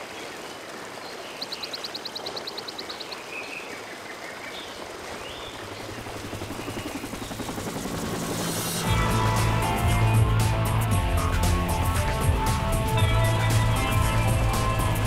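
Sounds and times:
running water hiss: 0:00.0 - 0:15.0
helicopter rotor beat: 0:05.1 - 0:15.0.

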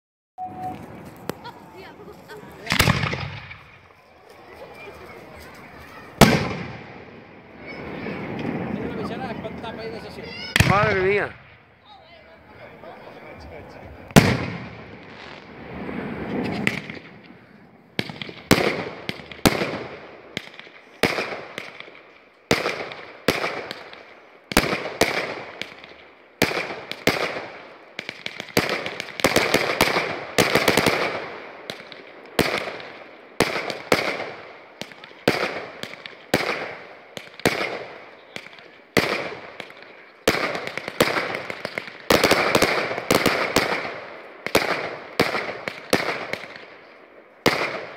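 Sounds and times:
firework shells bursting: 0:02.6 - 0:04.0, 0:14.1 - 0:46.8.

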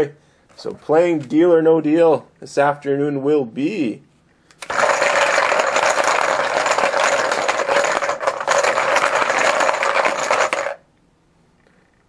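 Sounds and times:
small objects rattling in container: 0:04.6 - 0:10.8.

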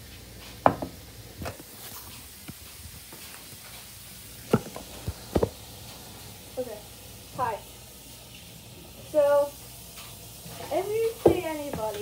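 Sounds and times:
kitchen knocks and clunks: 0:00.6 - 0:01.6, 0:04.5 - 0:05.6, 0:11.1 - 0:12.0.

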